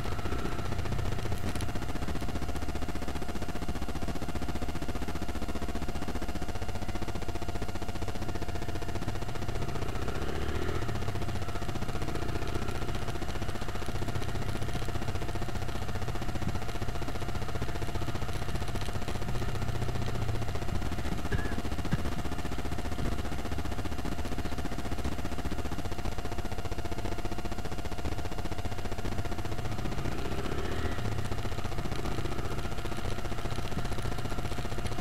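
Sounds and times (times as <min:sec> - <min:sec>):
motorcycle engine rumble: 0:00.0 - 0:02.4, 0:08.2 - 0:25.6, 0:28.7 - 0:35.0
thin steady whine: 0:00.0 - 0:35.0.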